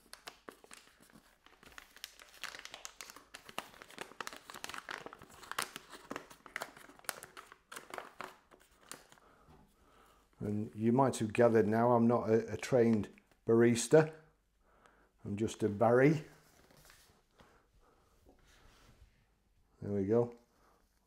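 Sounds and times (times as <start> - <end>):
foil bag crinkling: 0.0 - 9.2.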